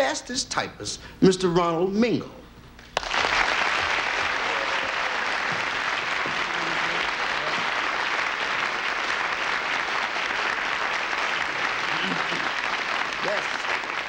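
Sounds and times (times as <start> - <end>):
audience applause: 3.0 - 14.0.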